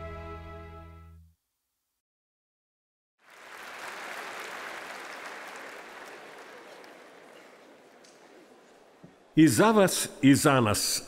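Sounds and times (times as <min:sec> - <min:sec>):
music: 0:00.0 - 0:01.4
large audience applauding: 0:03.2 - 0:08.5.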